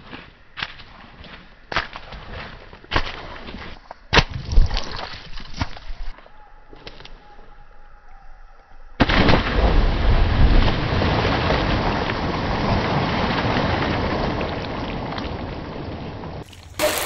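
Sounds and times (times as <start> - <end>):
water splashing in a pond: 9.1 - 17.0.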